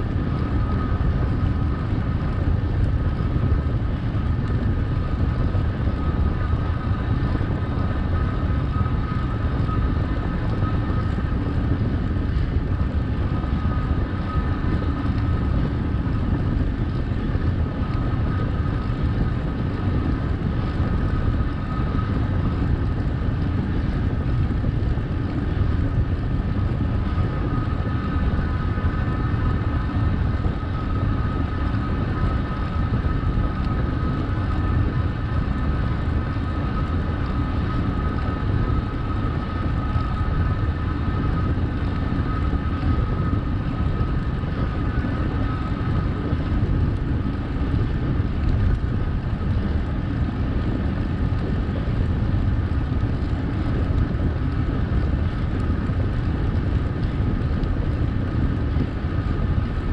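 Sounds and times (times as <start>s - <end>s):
steady high whine: 0.0s - 59.9s
wind rushing over microphone: 0.0s - 59.9s.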